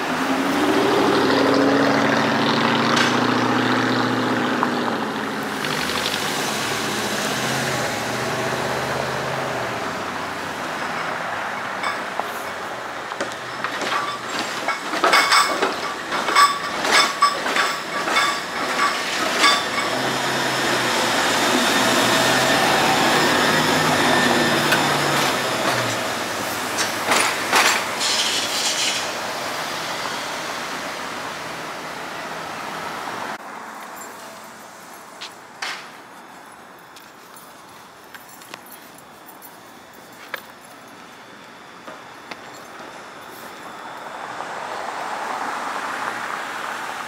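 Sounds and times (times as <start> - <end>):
trolley rumble with motor hum: 7.2 - 33.4
trolley wheels clacking on rails: 10.6 - 29.2
metal clanks: 10.9 - 20.0.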